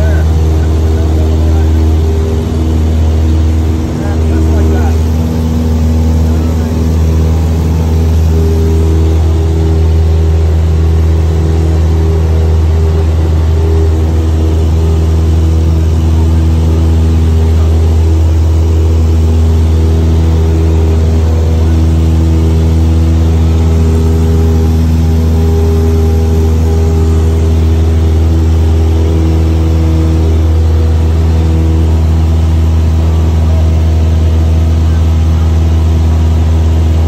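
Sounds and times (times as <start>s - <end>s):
airplane engine droning: 0.0s - 37.0s.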